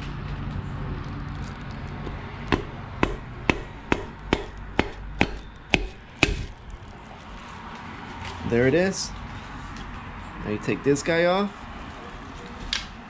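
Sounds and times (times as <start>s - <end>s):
mallet handle tapping metal: 2.5s - 6.5s.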